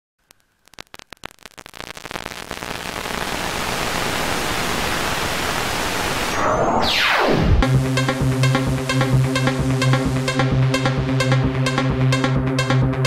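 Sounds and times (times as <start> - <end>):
synthesized static noise: 0.2 - 11.2
electronic music: 2.2 - 13.0
falling synth sweep: 3.4 - 10.9.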